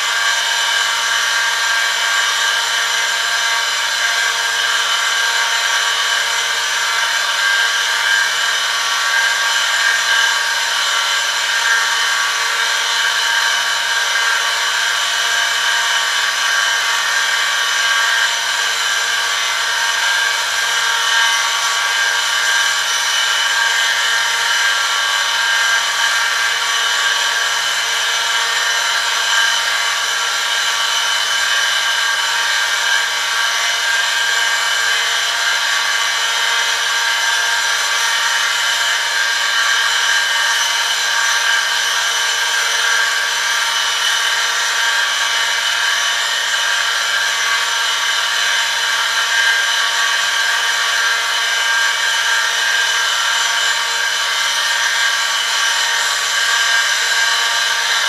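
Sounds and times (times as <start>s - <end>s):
high-pitched machine whine: 0.0s - 58.0s.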